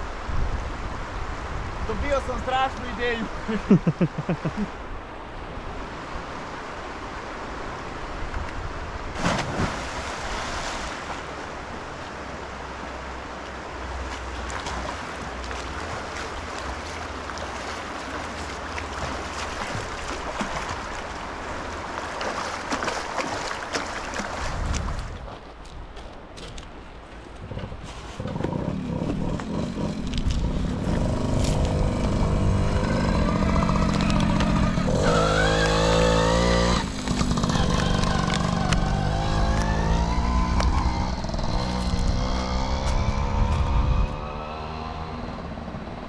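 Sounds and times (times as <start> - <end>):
water splashing from swimming: 9.2 - 11.4, 14.0 - 25.1
wind buffeting microphone: 24.2 - 26.7, 27.3 - 35.1, 36.8 - 44.3.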